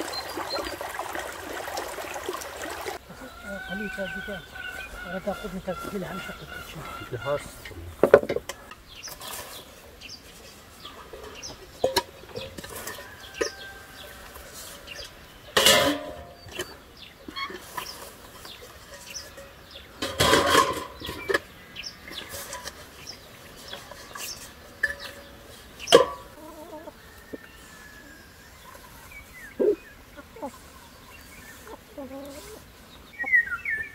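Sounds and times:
chickens clucking: 0.0 - 33.9
metal buckets clattering on stone: 3.6 - 26.4.

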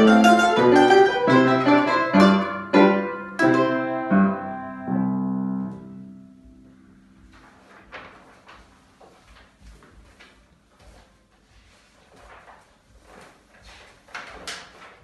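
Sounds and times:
piano and domra chord: 0.0 - 7.1
sheet music pages rustling: 5.6 - 15.0.

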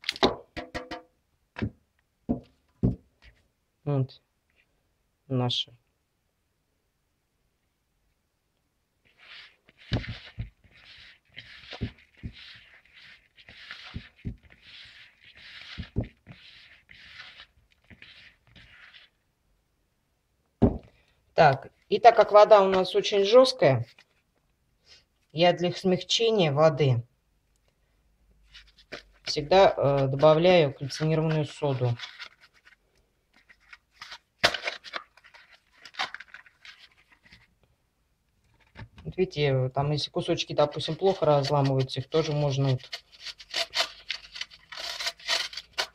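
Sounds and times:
hand stirring soap powder: 9.0 - 19.3, 28.4 - 37.7, 38.5 - 45.9
cardboard box scratching and crunching: 42.2 - 45.9.

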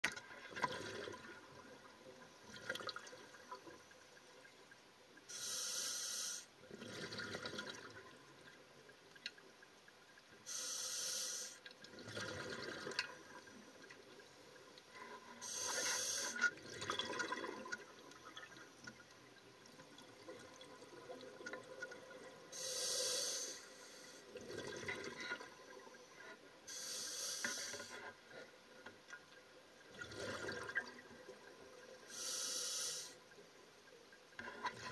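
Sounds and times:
regulator inhalation hiss: 5.3 - 6.5, 10.5 - 11.6, 15.4 - 16.4, 22.6 - 24.2, 26.7 - 28.0, 32.1 - 33.2.

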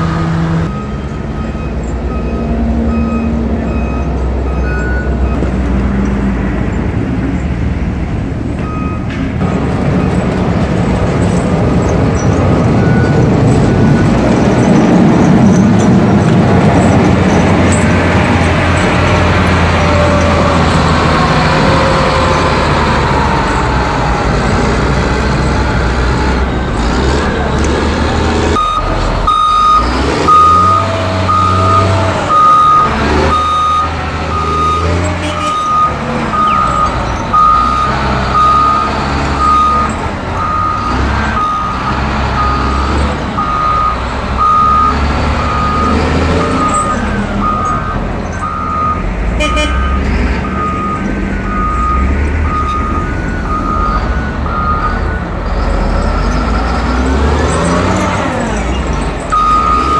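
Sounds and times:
heavy diesel machines running: 0.0 - 59.9
backup alarm beeping: 28.5 - 55.1, 59.3 - 59.9.

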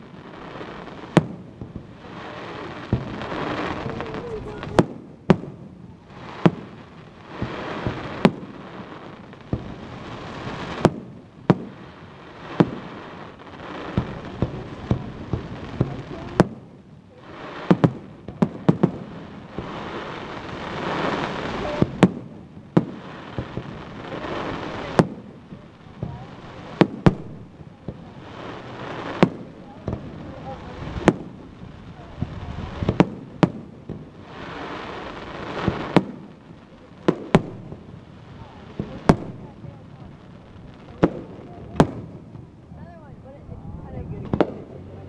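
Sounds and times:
firework shells booming: 0.0 - 16.6, 17.7 - 42.6, 44.2 - 44.9
firework crackling: 0.0 - 45.0.

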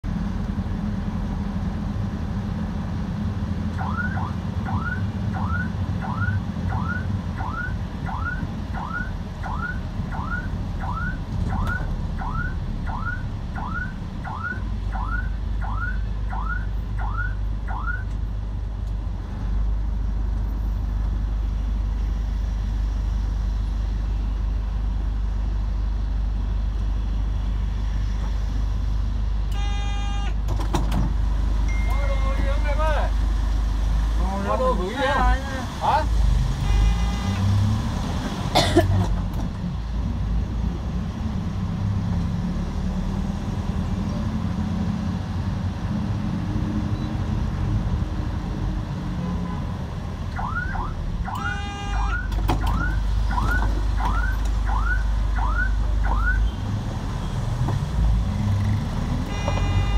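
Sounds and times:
traffic on a wet road: 0.0 - 59.9
short beep: 29.6 - 30.3, 31.7 - 32.4.

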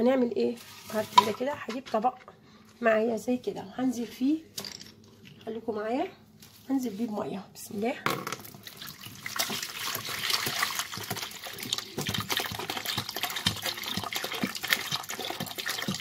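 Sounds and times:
water from hose splashing into basin: 8.4 - 16.0.

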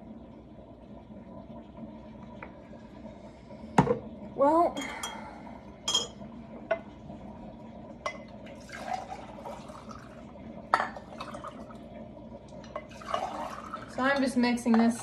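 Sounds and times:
spoon clinking against glass: 5.9 - 6.2
liquid sloshing: 8.1 - 11.9, 12.6 - 15.0.

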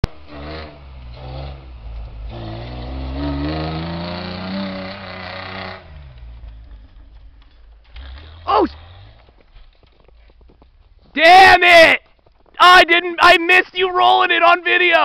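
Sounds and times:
engine revving hard: 0.1 - 6.4, 7.9 - 9.2
tires spinning through snow: 0.1 - 12.8.

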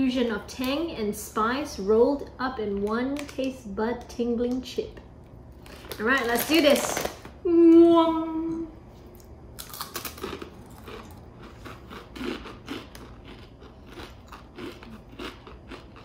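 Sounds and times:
chips crunching: 5.6 - 7.3, 9.1 - 16.0.

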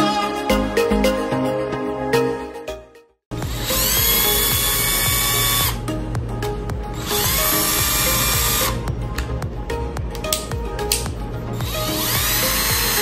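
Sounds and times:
background music: 0.0 - 13.0
cordless drill motor whining: 3.4 - 5.8, 7.0 - 8.8, 11.6 - 13.0.

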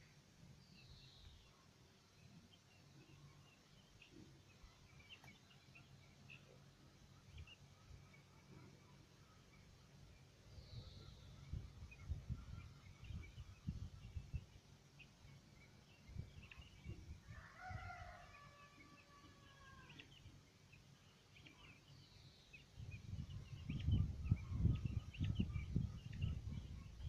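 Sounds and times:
young chicken crowing: 17.2 - 20.2.

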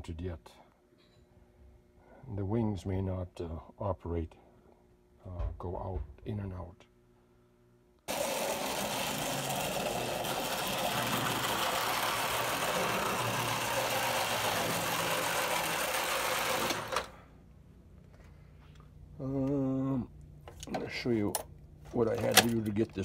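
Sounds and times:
toy train motor whirring: 8.1 - 17.2.

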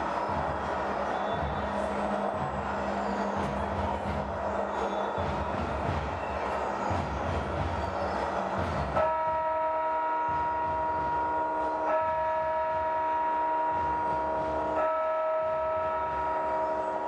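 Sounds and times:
horn-like chord: 9.0 - 17.0.

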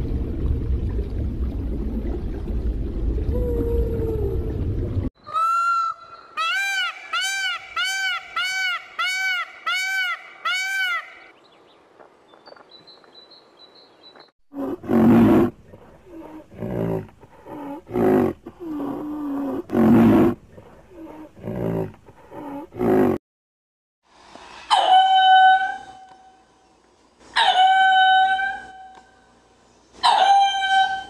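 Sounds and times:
large animal deep calls: 14.6 - 23.2.

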